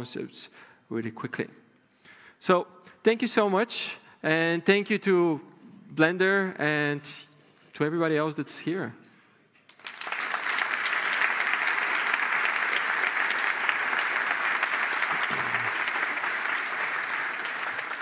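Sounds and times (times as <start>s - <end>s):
audience applauding: 9.7s - 18.0s.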